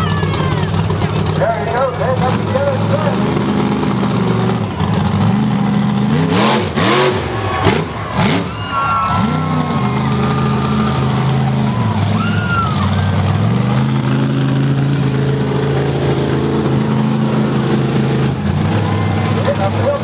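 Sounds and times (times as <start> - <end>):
monster truck engine running hard: 0.0 - 20.0.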